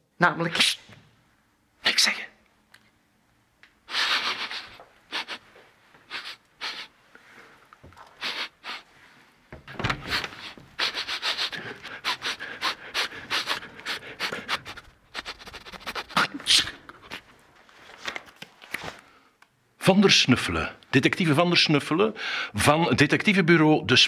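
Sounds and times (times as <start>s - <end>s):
man sniffing hard: 3.9s - 7.0s, 8.2s - 8.9s, 9.9s - 17.2s.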